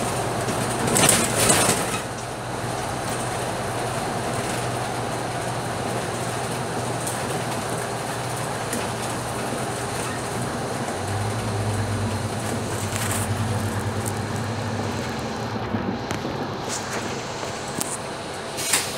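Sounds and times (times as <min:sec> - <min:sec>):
bus diesel engine humming: 0:00.0 - 0:18.9
road noise: 0:00.0 - 0:18.9.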